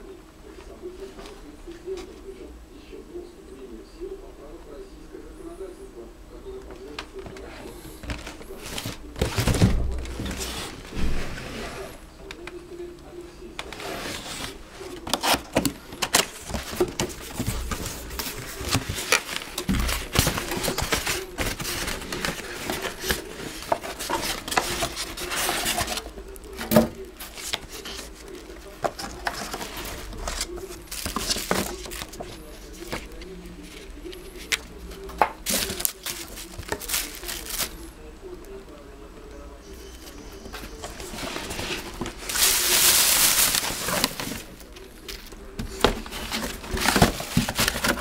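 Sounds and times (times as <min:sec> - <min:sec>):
plastic wrapping rustling: 0:06.9 - 0:12.5, 0:13.5 - 0:38.6, 0:39.8 - 0:48.0
cardboard and styrofoam handled: 0:07.2 - 0:12.0, 0:13.6 - 0:37.8, 0:39.8 - 0:48.0.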